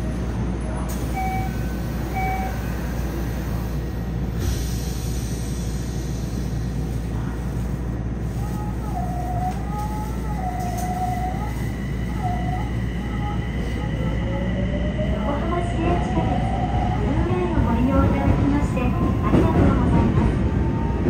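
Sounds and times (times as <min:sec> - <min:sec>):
train rumbling: 0:00.0 - 0:21.0
wavering train whine: 0:08.2 - 0:19.4.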